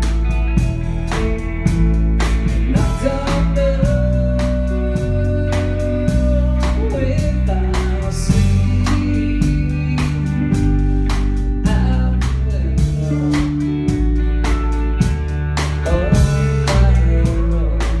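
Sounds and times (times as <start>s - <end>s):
electric guitar and bass: 0.0s - 18.0s
steady drum beat: 0.0s - 18.0s
man singing: 2.4s - 14.2s, 15.6s - 18.0s.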